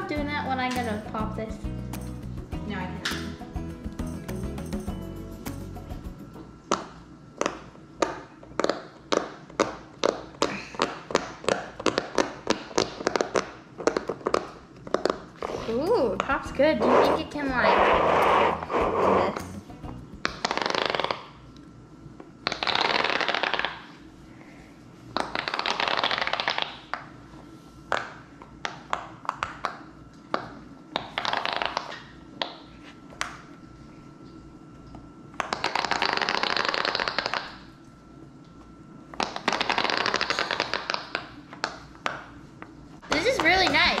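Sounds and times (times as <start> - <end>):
silicone fidget toy bubbles popping: 25.2 - 27.1, 35.4 - 37.6, 39.2 - 41.8.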